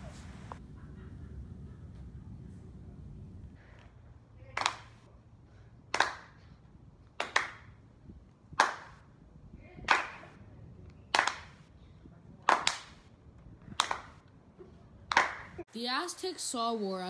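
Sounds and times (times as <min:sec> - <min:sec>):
people clapping in unison: 0:04.6 - 0:05.0, 0:05.9 - 0:06.4, 0:07.2 - 0:07.7, 0:08.6 - 0:09.0, 0:09.8 - 0:10.4, 0:11.1 - 0:11.6, 0:12.4 - 0:13.0, 0:13.7 - 0:14.2, 0:15.1 - 0:15.6.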